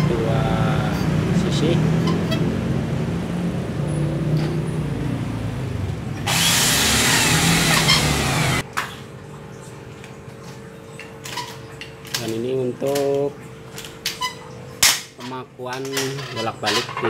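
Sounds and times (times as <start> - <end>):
electric drill boring metal: 6.3 - 8.6.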